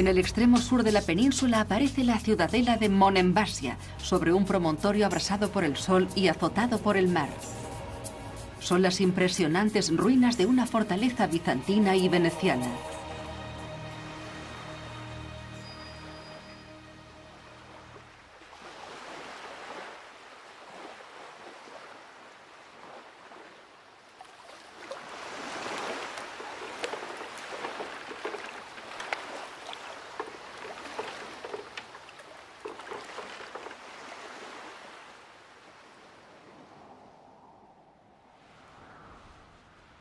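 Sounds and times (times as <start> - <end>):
sea water splashing: 3.6 - 15.7, 17.2 - 37.5.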